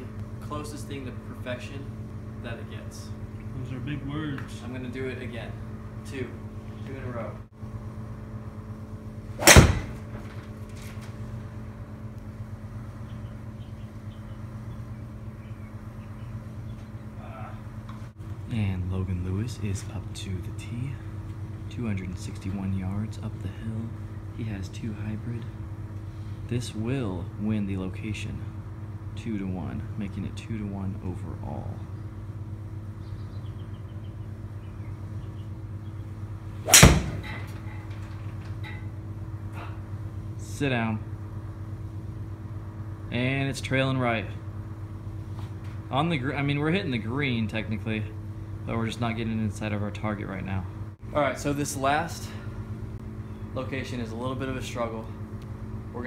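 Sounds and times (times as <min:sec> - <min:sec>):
steady low hum: 0:00.0 - 0:56.0
golf club striking ball: 0:09.4 - 0:10.4, 0:36.6 - 0:37.9.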